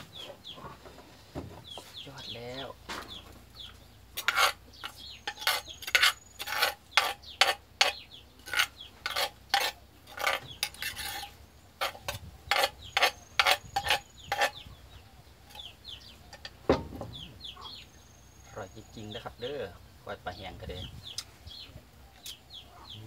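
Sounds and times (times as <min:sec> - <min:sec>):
metal spoon scraping a clay mortar: 0:03.6 - 0:14.6.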